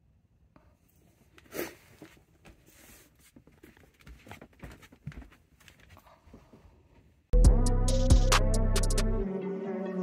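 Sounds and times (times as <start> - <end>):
bare feet scuffing: 1.4 - 6.6
soft footstep thumps on steps: 3.3 - 6.6.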